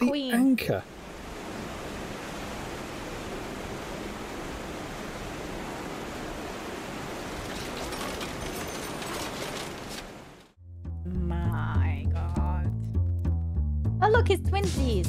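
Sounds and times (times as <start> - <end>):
rushing water: 0.0 - 10.6
wind: 0.0 - 10.6.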